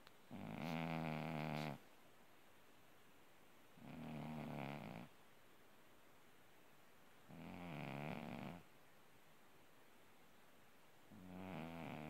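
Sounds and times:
cat snoring: 0.3 - 1.8, 3.8 - 5.1, 7.3 - 8.7, 11.1 - 12.0.

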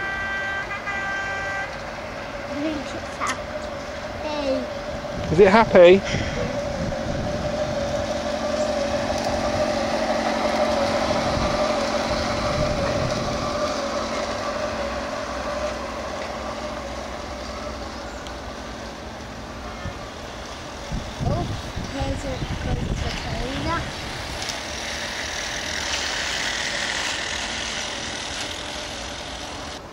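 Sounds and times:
wheels rumbling on rail: 0.0 - 29.9
model train motor whine: 2.5 - 29.9.

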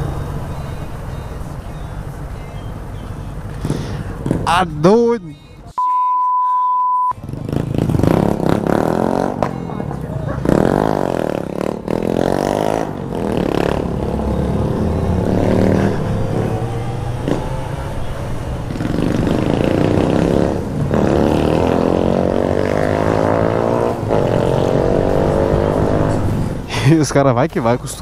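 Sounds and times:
motorcycle engine revving through gears: 7.2 - 9.5, 10.3 - 26.6.

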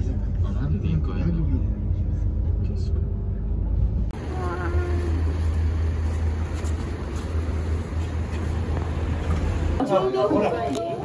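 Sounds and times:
low hum: 0.0 - 9.8
car cabin road rumble: 0.0 - 11.0.

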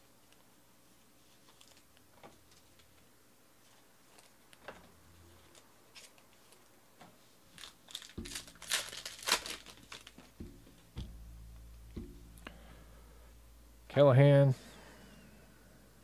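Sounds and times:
wrapper tearing and crinkling: 7.5 - 10.4
cards handled ticking: 7.6 - 11.2.

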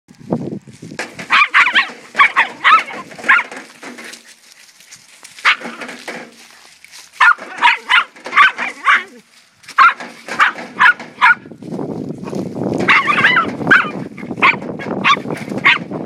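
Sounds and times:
dogs yipping and barking: 1.2 - 4.1, 5.4 - 6.1, 7.1 - 11.6, 12.2 - 16.0.

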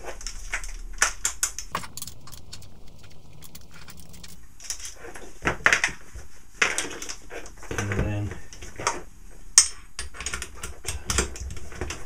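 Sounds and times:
metal hand tools clinking: 1.8 - 4.4.

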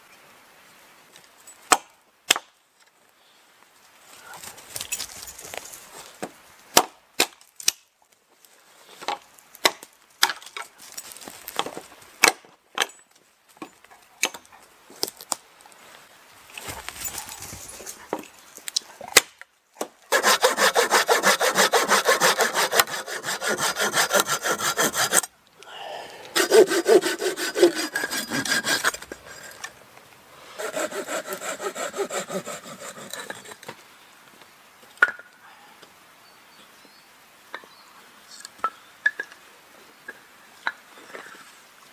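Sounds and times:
hand saw cutting wood: 20.1 - 25.3, 26.3 - 29.7, 30.6 - 33.7.

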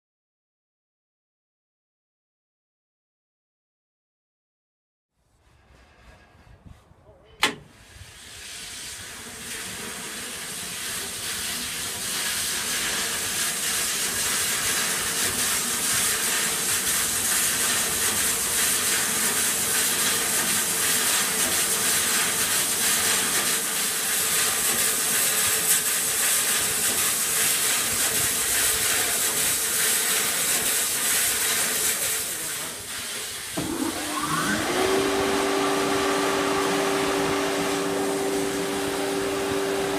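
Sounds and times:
band saw motor whirring: 33.6 - 39.9
rising tone settling into hum: 33.6 - 39.9.

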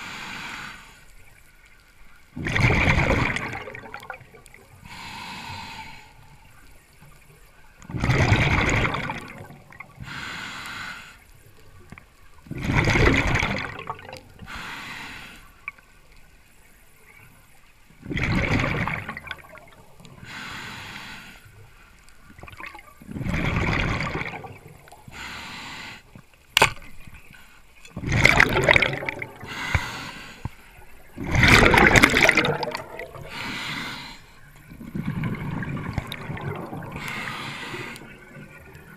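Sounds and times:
regulator inhale hiss: 0.0 - 1.5, 4.8 - 6.6, 10.0 - 11.4, 14.4 - 15.6, 20.2 - 22.1, 24.9 - 26.2, 29.4 - 30.9, 33.2 - 34.6, 36.9 - 38.9
exhaled bubbles gushing: 2.4 - 4.7, 7.8 - 10.0, 12.4 - 14.4, 18.0 - 20.1, 22.4 - 25.0, 27.9 - 29.7, 30.8 - 33.6, 34.6 - 38.9.

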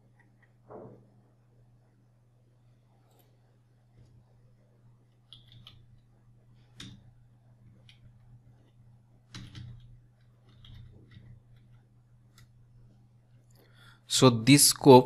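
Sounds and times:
keyboard keystrokes: 5.3 - 5.9, 9.3 - 12.5.

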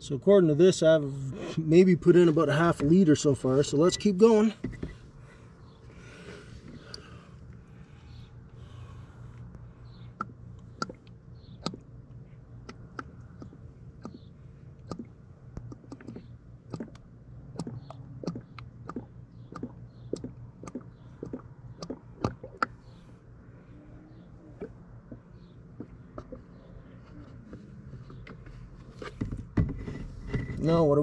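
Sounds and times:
oil glugging from a jug: 14.8 - 22.8.

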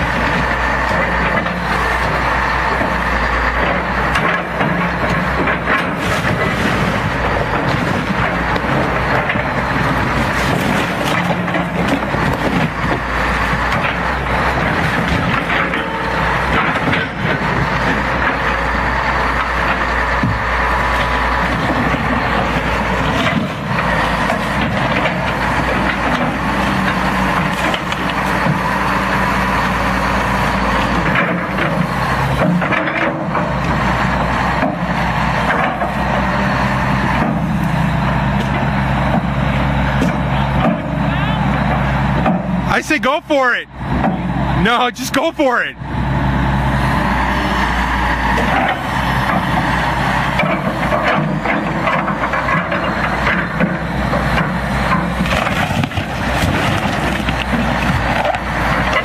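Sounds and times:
wood cracking and crunching: 0.0 - 18.7, 19.4 - 36.2, 48.4 - 59.0
diesel excavator engine running: 0.0 - 59.0.

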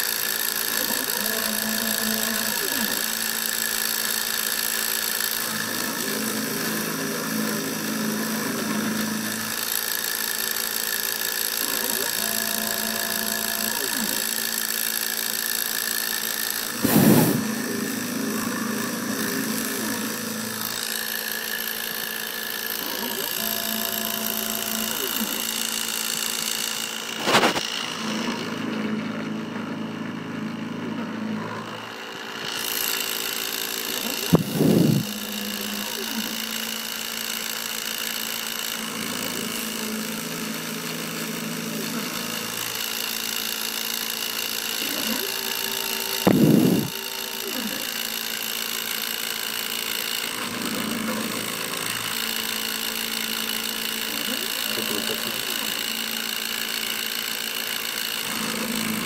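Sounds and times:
motor hum: 0.0 - 59.0
spindle whine: 33.8 - 36.4, 44.8 - 48.0.

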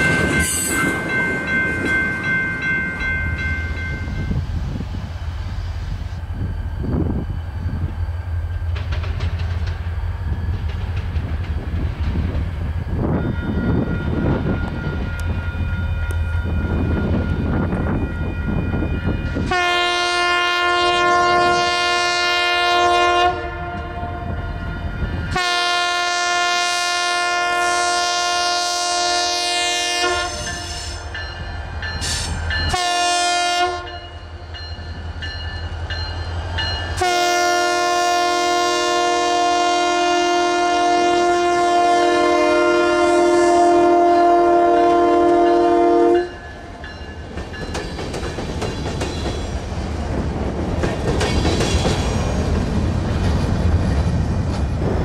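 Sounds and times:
multi-note air horn blasts: 19.4 - 24.2, 25.3 - 30.7, 32.7 - 34.0, 37.0 - 46.3.

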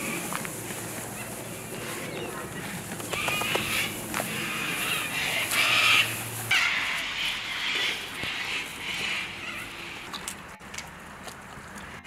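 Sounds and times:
puppies yipping and whining: 1.0 - 10.2.

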